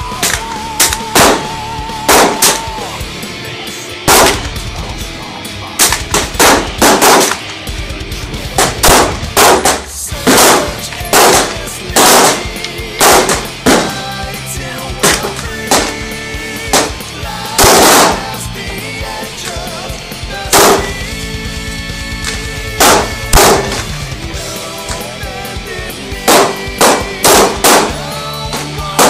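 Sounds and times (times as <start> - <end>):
heavy rock music: 0.0 - 29.0
gunshots: 0.1 - 3.0, 4.0 - 4.9, 5.7 - 14.4, 15.0 - 18.6, 20.5 - 21.2, 22.2 - 25.2, 26.2 - 29.0.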